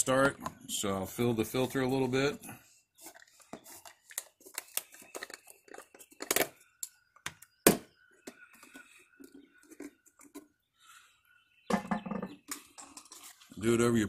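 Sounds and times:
plastic bottle cap crinkling: 3.1s - 6.6s.

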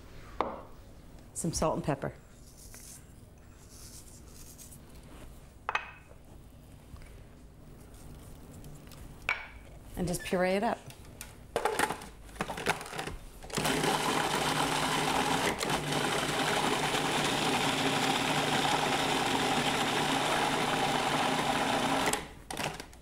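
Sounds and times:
food processor motor running: 13.5s - 22.8s.

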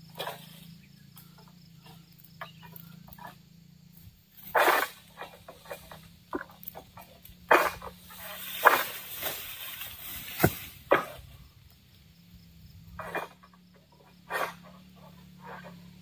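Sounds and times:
fronds rustling: 4.3s - 12.0s
blade hacking at fronds: 4.4s - 11.3s.

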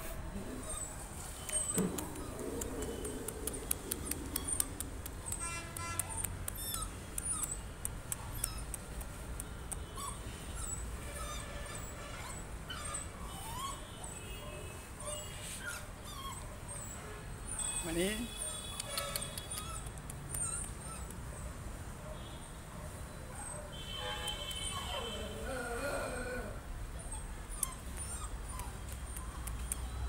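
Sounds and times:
rapid sharp clicks: 1.8s - 9.5s.

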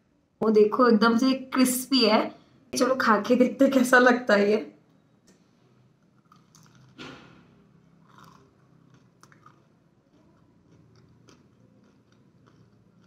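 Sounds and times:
chewing with faint crunches: 5.3s - 7.0s, 7.9s - 13.0s
crisp crunch of biting: 6.2s - 7.0s, 8.0s - 13.0s.

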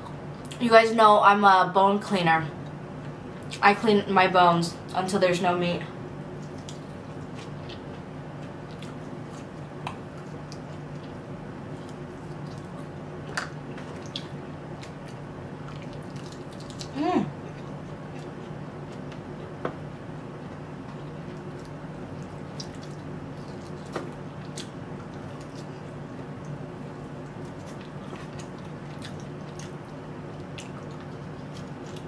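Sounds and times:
air conditioner hum: 0.0s - 32.0s
mouth gnawing meat off bone: 6.4s - 19.1s, 21.1s - 32.0s.

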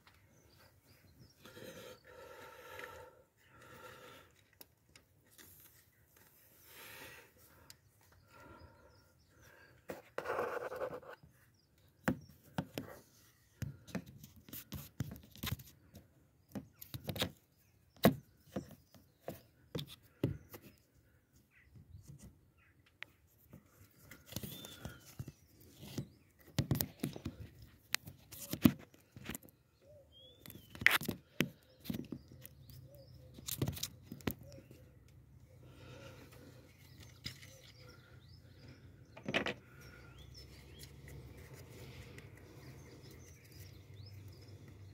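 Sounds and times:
bird chirping: 16.4s - 27.3s, 29.1s - 44.9s.

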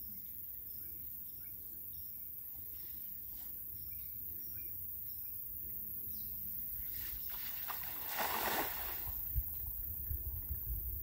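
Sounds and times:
water sloshing and splashing: 7.3s - 9.3s.

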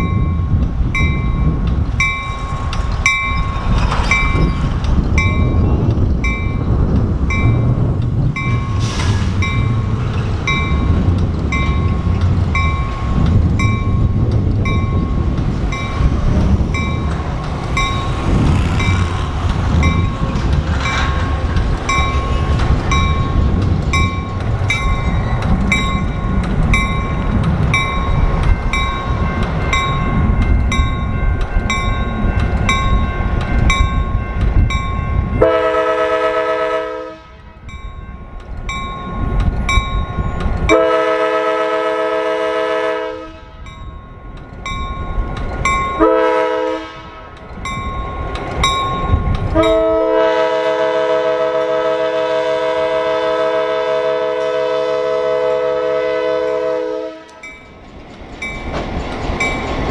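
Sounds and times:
diesel locomotive engine running: 0.0s - 59.9s.

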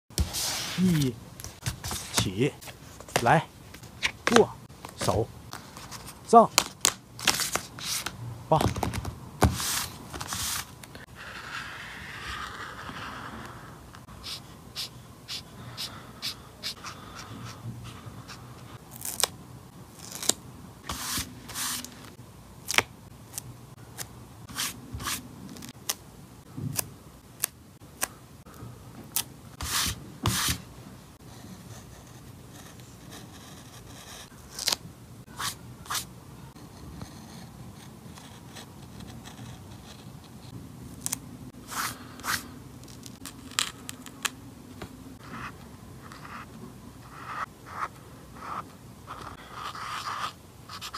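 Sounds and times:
notebook handling: 0.2s - 11.0s.

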